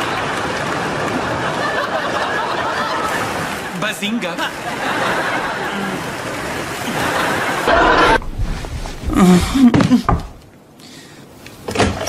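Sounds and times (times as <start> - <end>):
audience laughter: 0.0 - 3.7, 4.4 - 8.2.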